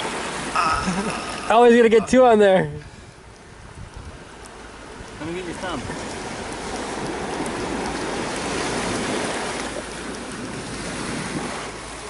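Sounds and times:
sea surf rushing: 0.0s - 12.0s
wind on microphone: 2.8s - 12.0s.

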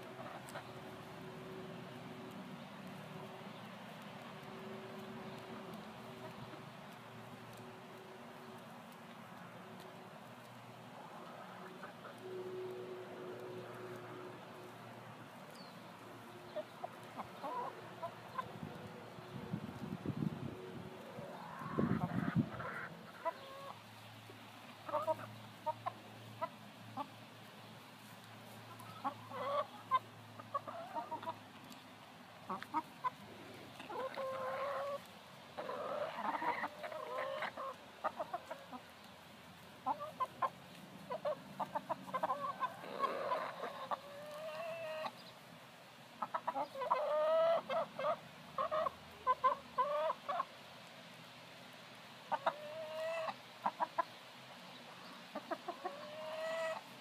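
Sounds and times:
hens clucking: 0.0s - 8.7s, 9.3s - 45.5s, 46.1s - 50.6s, 52.3s - 57.0s.

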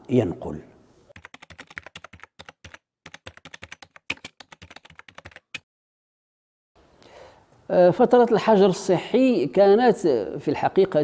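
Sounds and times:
typing on computer keyboard: 1.1s - 5.6s.

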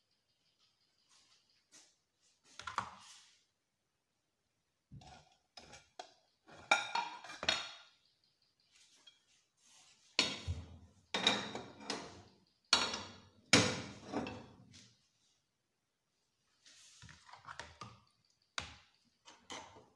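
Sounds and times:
plate and pot clattering on stove: 5.0s - 7.9s, 10.2s - 14.6s.

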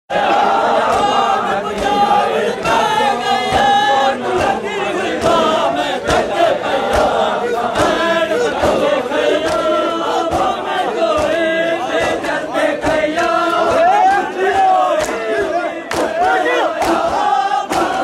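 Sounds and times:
crowd of men chanting: 0.1s - 18.0s
hands slapping bare chests: 5.2s - 8.8s, 9.4s - 11.4s, 12.0s - 18.0s.

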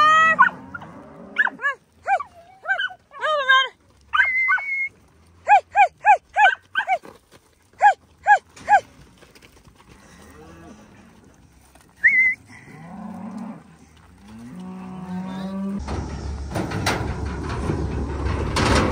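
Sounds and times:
dog barking and yipping: 0.2s - 0.6s, 1.4s - 3.0s, 4.1s - 7.0s, 7.8s - 8.9s.

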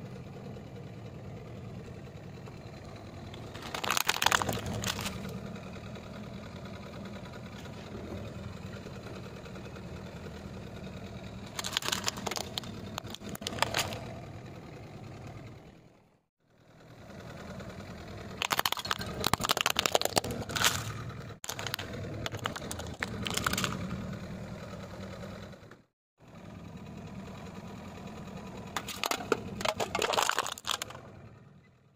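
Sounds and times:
car engine humming: 0.0s - 31.9s
tyres crushing plastic toys: 3.4s - 5.4s, 11.5s - 14.2s, 18.4s - 23.8s, 28.8s - 31.0s.

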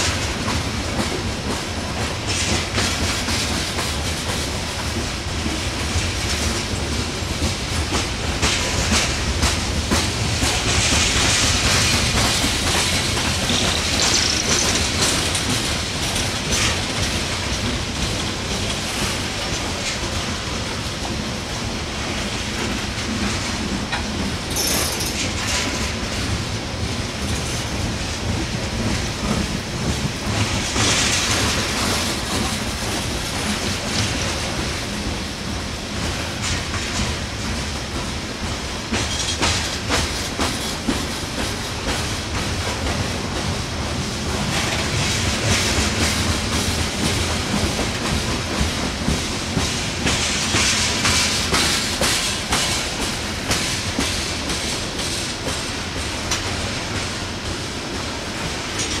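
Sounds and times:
train wheels rumbling on rail: 0.0s - 59.0s
wheels clicking over rail joints: 7.9s - 20.2s.

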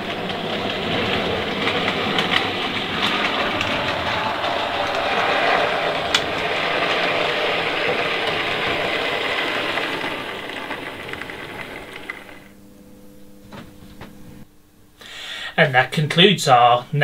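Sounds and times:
model train motor whirring: 0.0s - 12.5s
wheels rattling over track: 0.0s - 12.6s.

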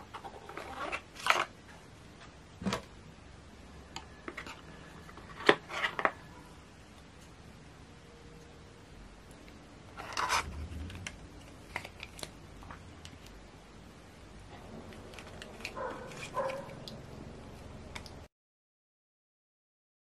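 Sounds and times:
dog barking: 15.8s - 16.8s.

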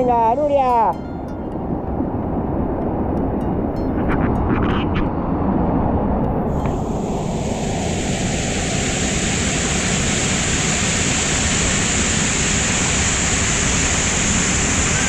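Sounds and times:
waterfall rushing: 6.6s - 15.0s.

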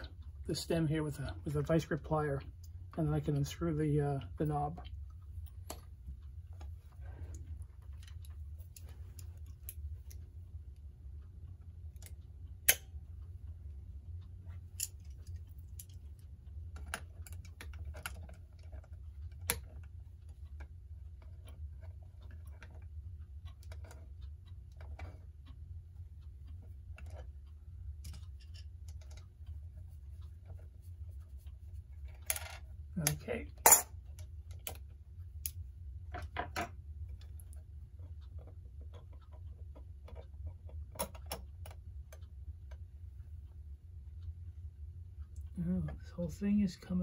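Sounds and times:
steady low hum: 0.0s - 47.0s
pliers clicking and tapping metal: 12.0s - 12.9s, 14.8s - 16.0s.

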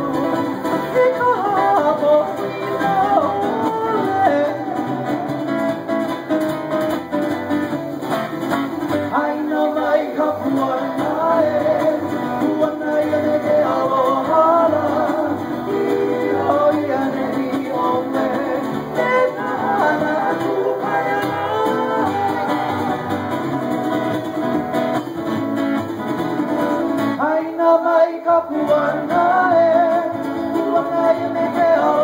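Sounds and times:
person singing: 0.0s - 5.8s, 9.0s - 23.6s, 27.2s - 32.0s.

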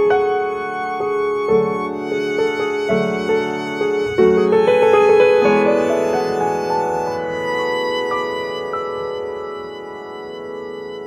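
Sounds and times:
accompanying chords: 0.0s - 11.0s
violin playing held notes: 0.0s - 11.0s.

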